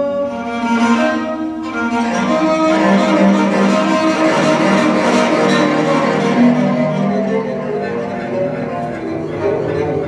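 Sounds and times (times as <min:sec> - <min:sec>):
bowed zither low notes: 0:00.0 - 0:10.0
gritty bow noise: 0:00.5 - 0:10.0.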